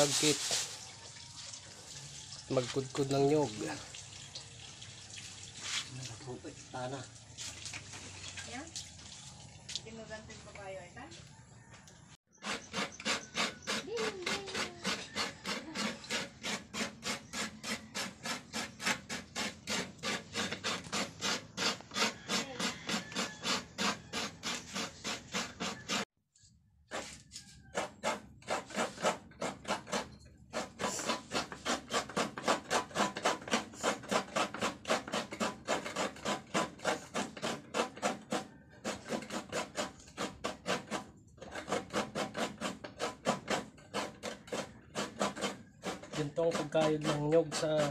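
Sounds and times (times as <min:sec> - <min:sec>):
coconut scraping on grater: 0:00.0 - 0:00.8, 0:12.3 - 0:26.1, 0:26.9 - 0:47.9.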